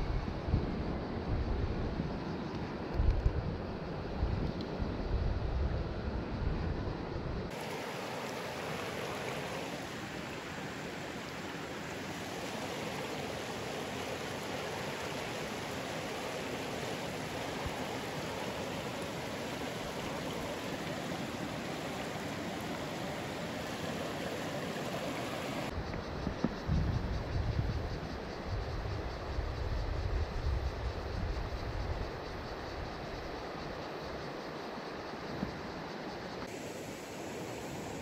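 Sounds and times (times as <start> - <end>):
creek flowing over stones: 7.5 - 25.7.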